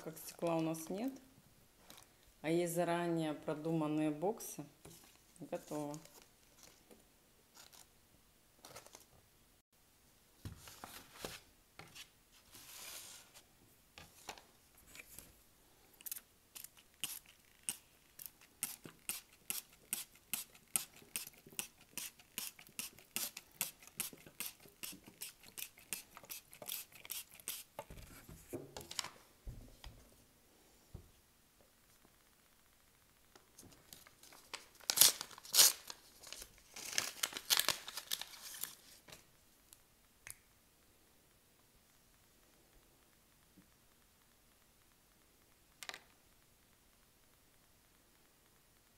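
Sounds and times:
handling and rustling: 0:04.8 - 0:07.9, 0:08.6 - 0:09.2, 0:10.4 - 0:15.4, 0:33.6 - 0:39.3.

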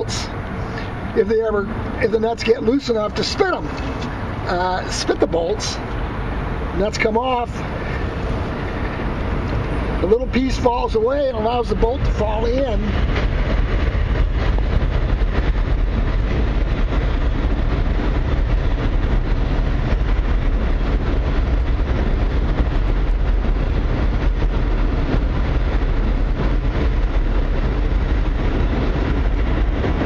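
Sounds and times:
train rumbling past: 0:00.0 - 0:30.0.

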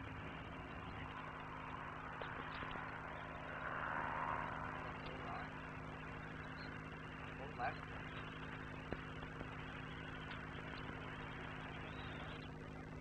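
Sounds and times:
electrical hum and hiss: 0:00.0 - 0:13.0
faint ticks: 0:00.5 - 0:03.9, 0:07.8 - 0:12.7.

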